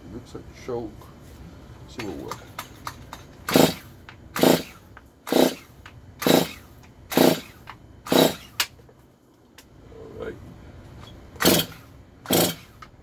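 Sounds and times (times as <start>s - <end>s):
chainsaw recoil starter pulls: 3.5s - 6.6s, 11.4s - 12.8s.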